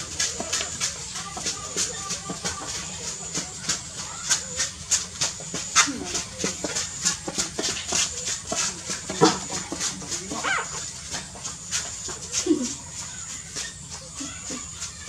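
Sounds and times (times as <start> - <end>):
puppies squeaking: 10.1 - 10.9.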